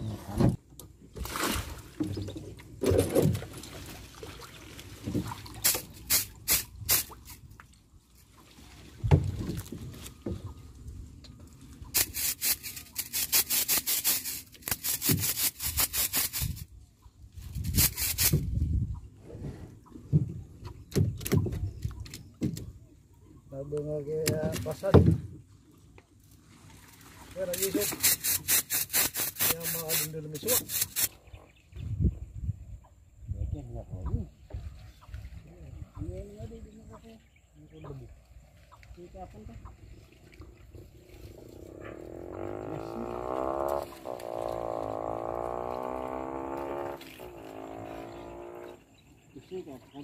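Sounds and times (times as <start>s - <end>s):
water splashing around person wading: 1.0s - 16.6s, 24.6s - 29.8s, 39.7s - 42.0s, 43.4s - 46.0s.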